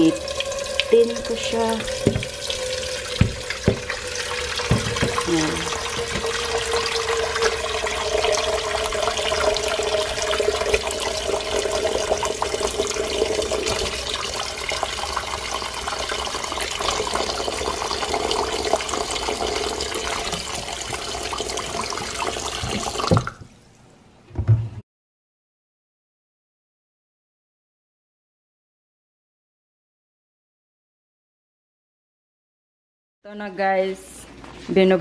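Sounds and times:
tap water filling a pot: 0.0s - 23.5s
knock: 2.0s - 2.3s, 3.2s - 3.9s, 4.6s - 5.2s.

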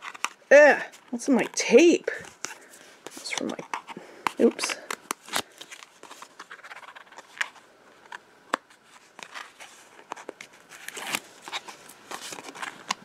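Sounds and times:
tape liner crackling and rustling: 0.0s - 13.0s.

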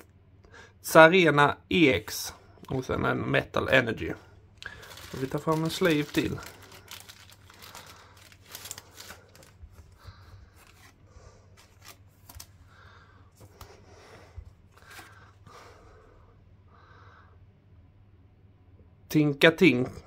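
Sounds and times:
trading cards clicking and rustling: 4.6s - 11.0s, 11.6s - 12.6s.

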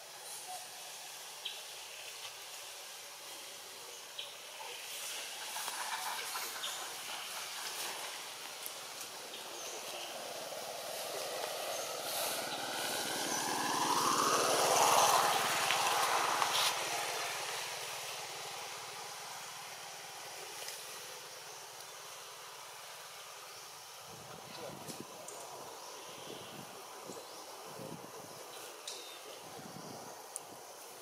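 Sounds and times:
motor vehicle passing by: 9.2s - 20.3s.

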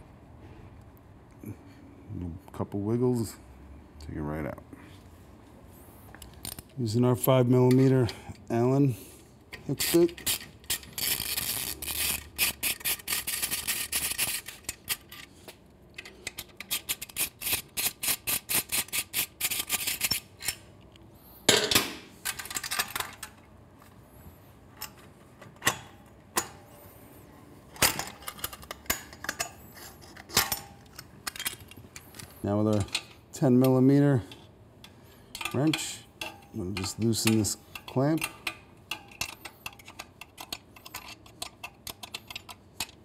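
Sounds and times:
tool clinking against metal: 35.3s - 43.0s.

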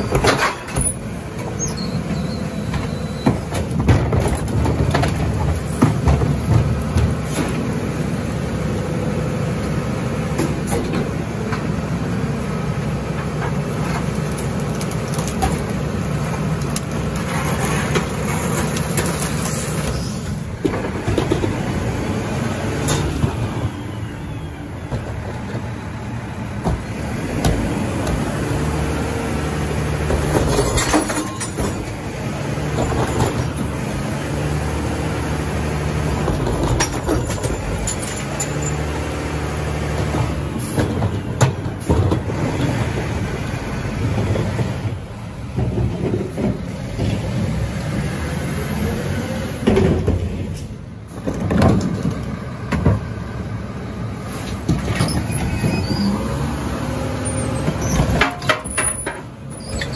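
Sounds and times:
knocks and clanks: 0.0s - 7.7s, 20.5s - 21.9s, 30.0s - 32.0s, 36.2s - 38.8s, 39.9s - 43.0s, 44.1s - 47.4s, 49.6s - 53.1s, 57.6s - 59.9s
garbage truck diesel engine hum: 0.0s - 59.9s.

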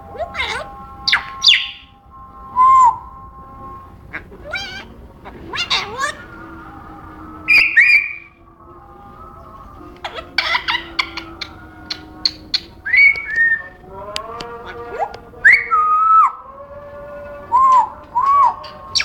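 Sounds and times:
parrot whistling and chirping: 0.1s - 2.0s, 2.6s - 6.4s, 7.4s - 8.4s, 10.0s - 13.8s, 14.9s - 16.4s, 17.5s - 19.0s.

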